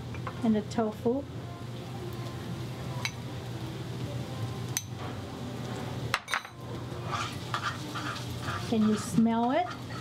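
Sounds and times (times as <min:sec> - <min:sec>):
utensils clinking against dishes: 0:06.1 - 0:10.0.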